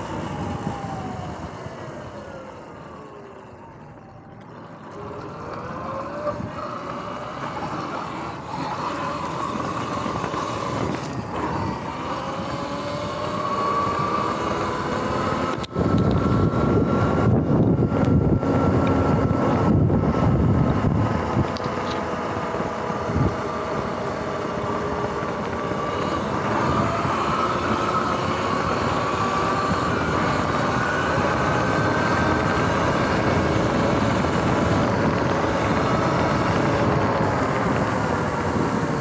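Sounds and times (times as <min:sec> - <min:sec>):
wind rushing on microphone: 0:00.0 - 0:02.5, 0:05.7 - 0:39.0
electric motor whining: 0:00.0 - 0:39.0
ride rumble: 0:00.0 - 0:39.0.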